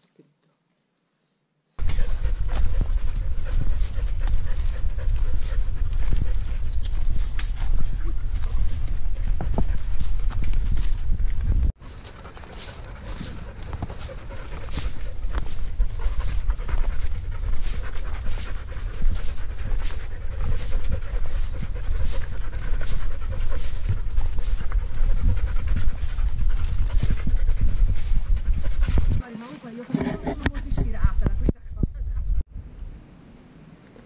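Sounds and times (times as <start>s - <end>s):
heavy rhythmic panting: 1.8s - 10.3s, 11.4s - 31.0s
low microphone rumble: 1.8s - 11.7s, 12.8s - 29.2s
footsteps on leaves and stones: 1.8s - 29.8s.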